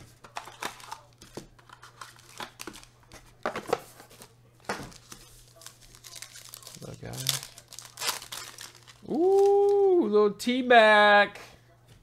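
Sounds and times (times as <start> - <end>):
foil packs crinkling: 4.9 - 9.5.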